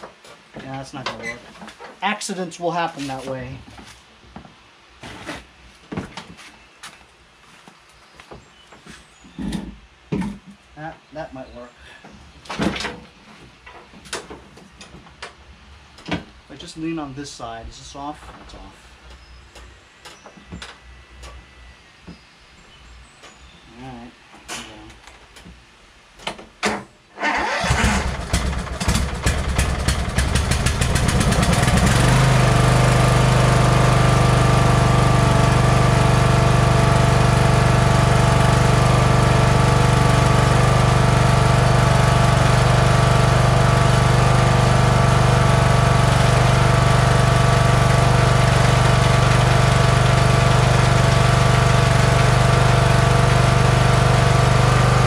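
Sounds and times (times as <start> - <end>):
electric starter cranking engine: 27.2 - 55.0
lawn tractor engine running: 27.2 - 55.0.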